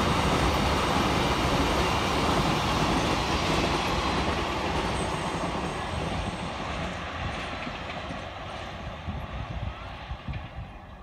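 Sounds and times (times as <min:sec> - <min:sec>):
freight train wagons rumbling: 0:00.0 - 0:11.0.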